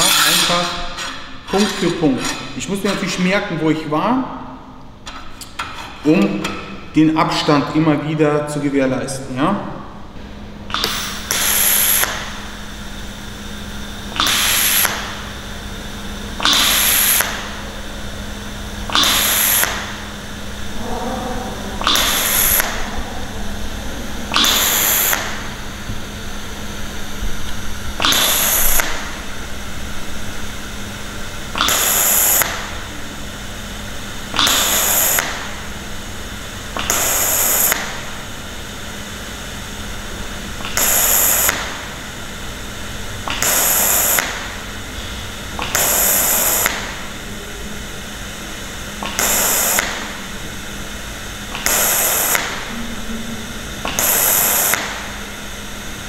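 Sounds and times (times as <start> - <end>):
welding arc hissing: 10.7 - 20.8, 21.6 - 38.2, 40.4 - 47.4, 48.4 - 55.5
low hum: 15.0 - 31.6, 52.6 - 55.6.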